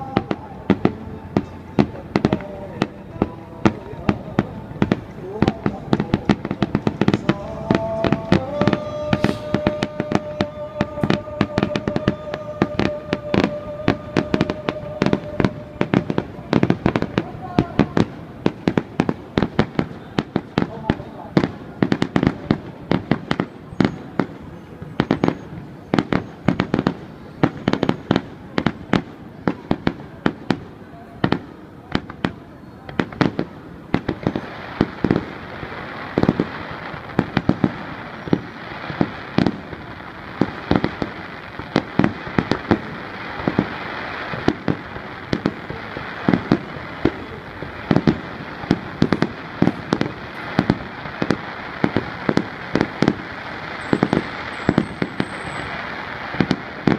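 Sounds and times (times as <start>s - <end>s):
fireworks bangs: 0.0s - 56.9s.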